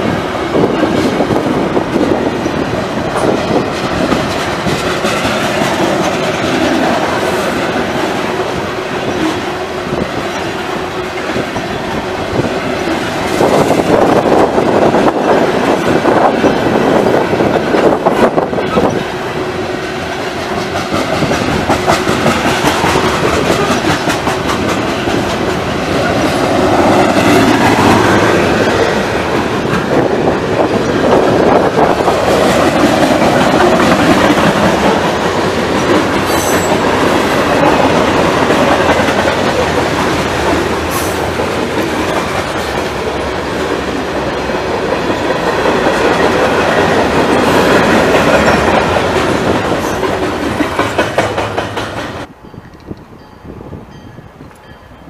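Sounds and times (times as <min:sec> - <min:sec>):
freight train rumble: 0:00.0 - 0:55.0
train wheels clacking over rail joints: 0:00.6 - 0:09.6, 0:20.3 - 0:52.3.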